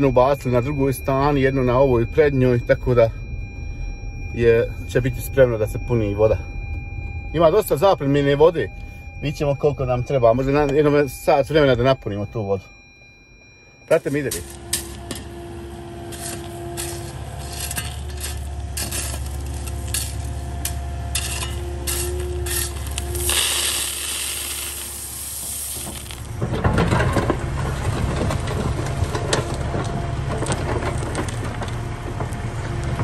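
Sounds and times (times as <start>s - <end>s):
hydraulic whine: 13.0s - 27.2s
excavator engine hum: 13.4s - 33.0s
stones and tools clinking: 16.1s - 25.0s
sand and gravel pouring: 16.1s - 26.4s.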